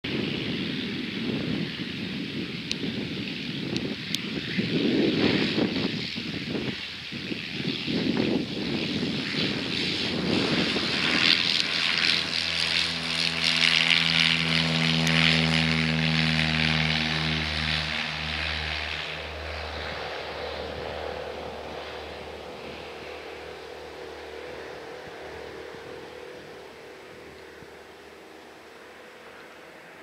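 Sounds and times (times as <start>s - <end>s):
propeller engine drone: 0.0s - 30.0s
wind rumbling on microphone: 0.0s - 30.0s.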